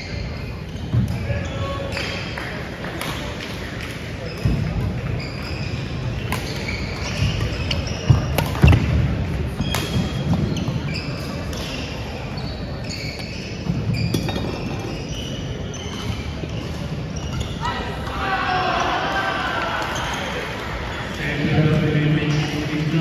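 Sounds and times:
shoes squeaking on hardwood floor: 4.2s - 8.9s, 9.6s - 17.8s.

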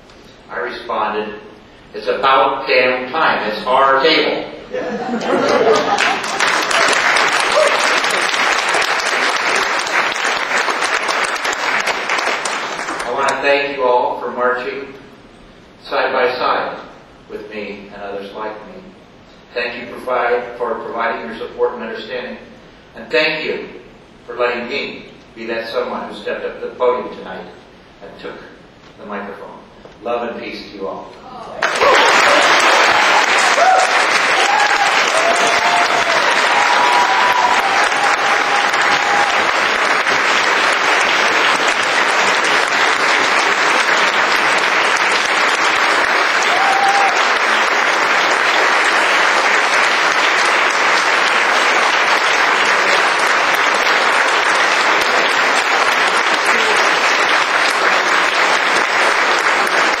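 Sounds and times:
audience applauding: 5.1s - 13.4s, 31.6s - 60.0s.

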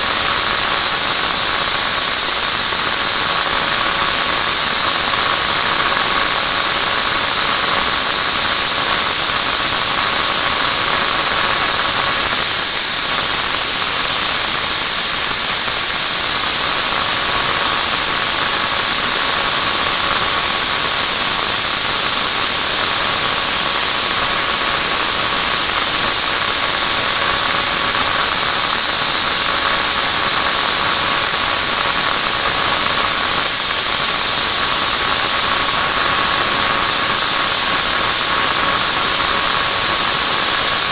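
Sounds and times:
angle grinder whining: 0.0s - 40.9s.

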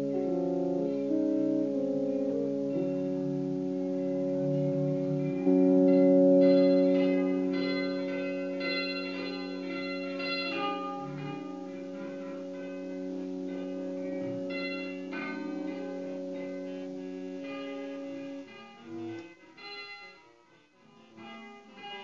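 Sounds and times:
held drone tones: 0.0s - 20.3s
short ringing notes: 4.6s - 18.8s.

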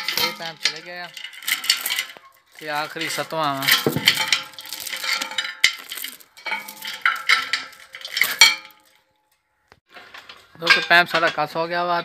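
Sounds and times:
sharp metal knocks: 0.0s - 9.0s
chain and pipe fittings clanking: 0.0s - 11.6s.

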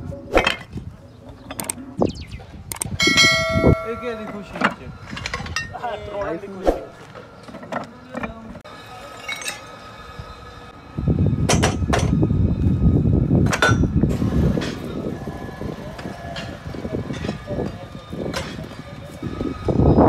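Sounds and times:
sharp metal clanks: 2.7s - 5.8s
metal pieces clinking and clanking: 9.2s - 9.7s
loud low rumbling: 10.1s - 17.7s.

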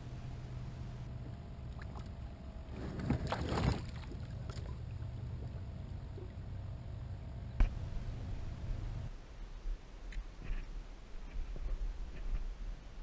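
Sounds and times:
steady low hum: 0.0s - 13.0s
water splashing: 1.7s - 6.7s.

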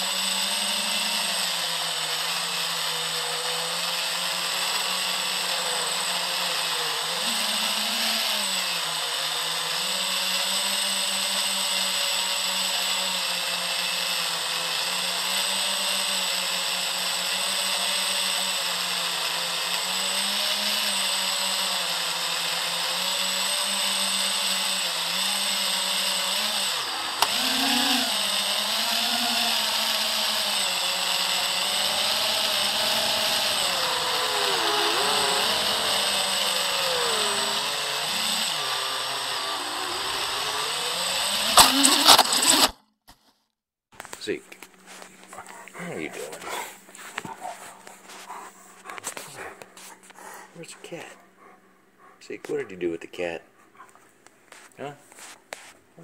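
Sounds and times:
quadcopter motors whining: 0.0s - 42.8s, 44.9s - 51.1s.

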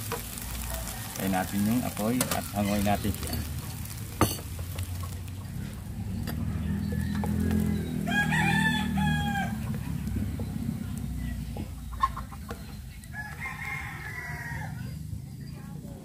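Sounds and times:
rooster crowing: 0.4s - 3.0s, 5.6s - 10.4s, 13.0s - 15.1s.

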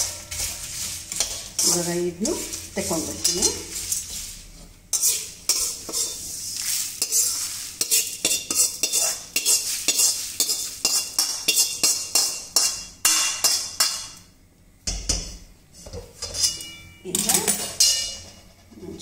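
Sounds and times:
metal spatula scraping metal wok: 0.0s - 14.2s, 15.8s - 19.0s
metal clinking on metal: 16.2s - 18.5s.

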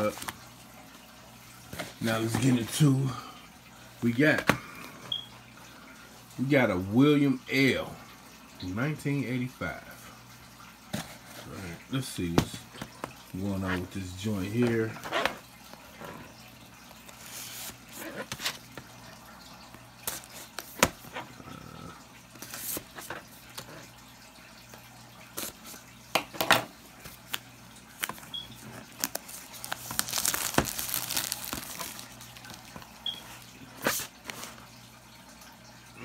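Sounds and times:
plastic wrap crinkling: 27.2s - 34.0s.

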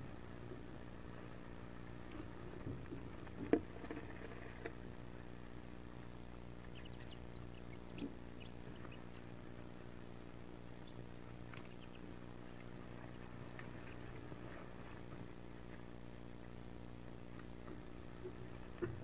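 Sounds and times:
steady low hum: 0.0s - 19.0s
ducklings scrabbling: 1.0s - 5.7s, 6.4s - 15.8s.

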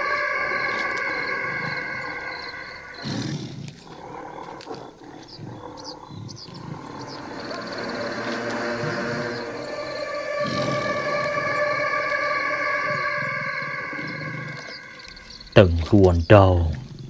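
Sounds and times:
droning tone: 0.0s - 3.4s, 6.6s - 15.9s
faint high chirps: 0.0s - 3.5s, 5.8s - 16.8s
tiger roaring: 0.0s - 15.6s
tiger calls: 0.0s - 17.0s.

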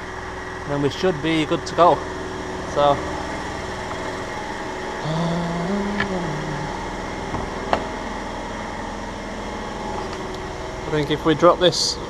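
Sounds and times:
workshop hum: 0.0s - 12.0s
low hummed voice: 5.0s - 7.4s, 10.9s - 12.0s.

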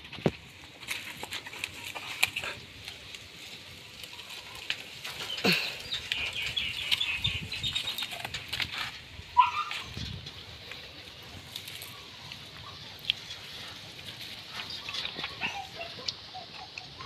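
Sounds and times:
puppy lapping and chewing: 11.6s - 17.0s.

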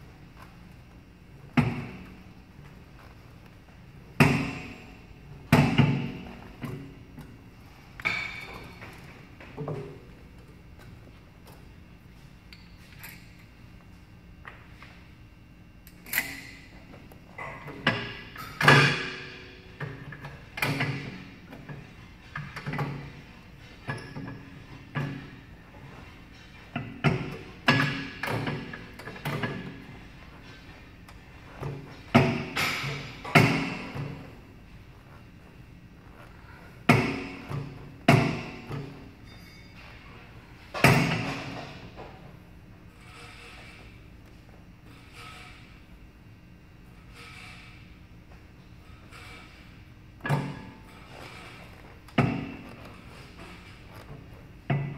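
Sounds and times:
gym equipment clanking: 7.9s - 10.1s, 15.9s - 35.2s, 36.0s - 42.3s, 48.7s - 54.9s.

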